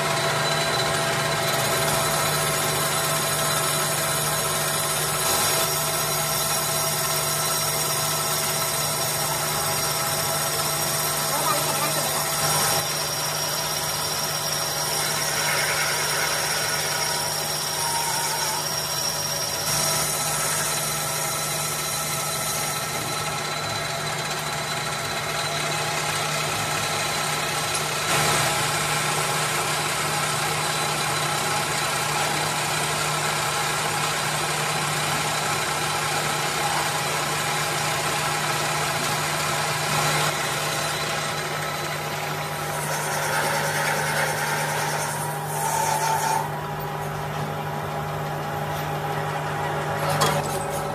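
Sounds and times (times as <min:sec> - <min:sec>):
lathe drive hum: 0:00.0 - 0:50.9
metal cutting noise: 0:00.0 - 0:50.9.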